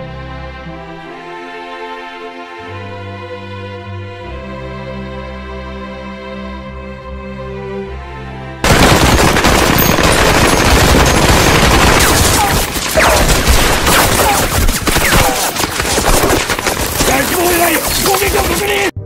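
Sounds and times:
automatic gunfire: 8.6 - 18.2.

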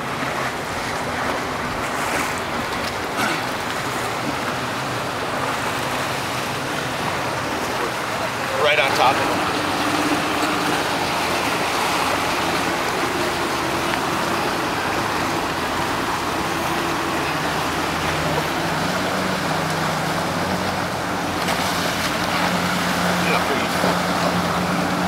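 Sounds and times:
outboard motors humming: 0.0 - 25.0
water rushing: 0.0 - 25.0.

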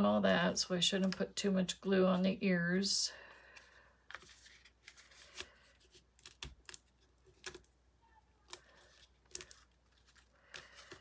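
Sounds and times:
paper rustling: 3.5 - 7.7, 8.4 - 11.0.

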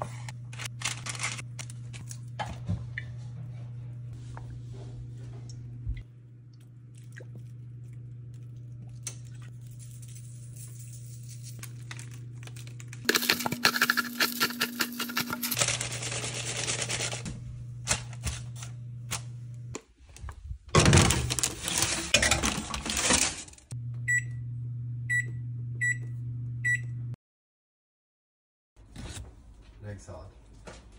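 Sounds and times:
pepper mill grinding: 9.6 - 17.2.

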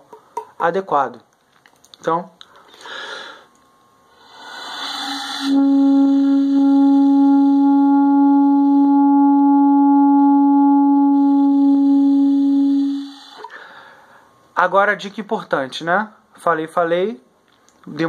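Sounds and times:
airy hiss: 4.1 - 6.5, 12.8 - 14.1.

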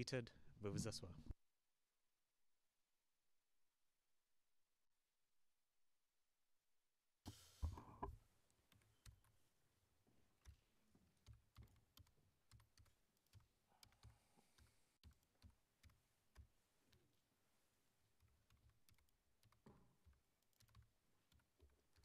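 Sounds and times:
computer keyboard clicks: 11.2 - 16.5, 18.4 - 22.0.

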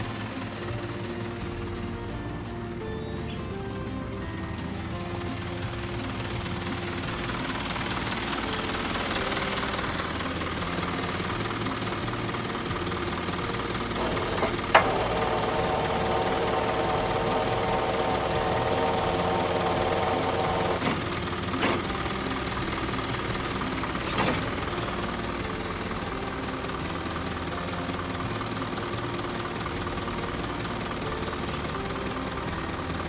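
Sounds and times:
truck engine idling: 0.0 - 33.0
multi-tone whine: 5.0 - 28.9.

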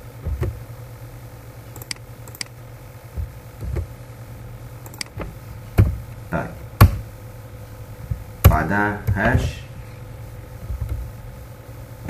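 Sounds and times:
steady low hum: 0.0 - 12.0
low thumps: 3.1 - 4.0, 5.1 - 7.2, 7.9 - 9.7.

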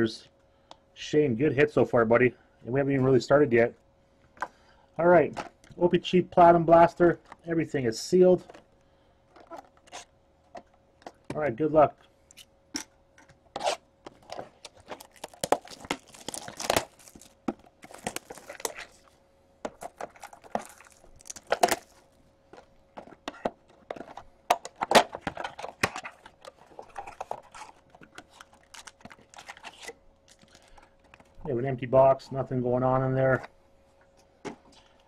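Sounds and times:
plastic shrink-wrap tearing and crinkling: 13.6 - 19.1, 19.8 - 22.0, 25.9 - 31.2.

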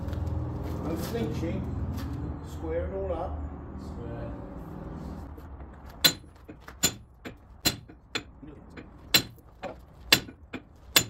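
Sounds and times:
hammer striking metal pin: 6.0 - 11.0.

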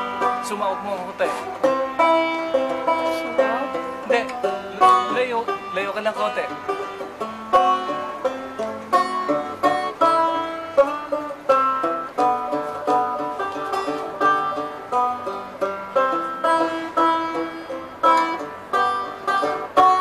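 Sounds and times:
banjo chords fingerpicked: 0.0 - 20.0.

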